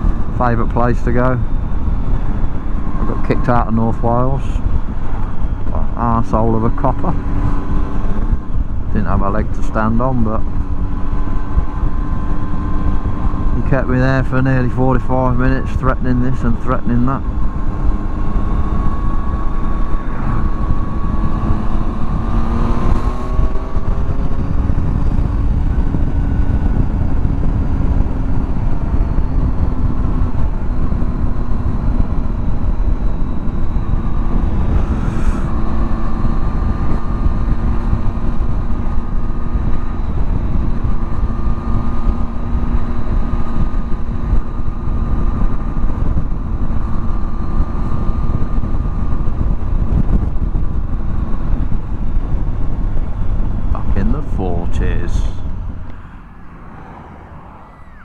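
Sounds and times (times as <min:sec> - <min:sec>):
low wind rumble: 0:00.0 - 0:58.0
motorcycle engine running: 0:16.4 - 0:58.0.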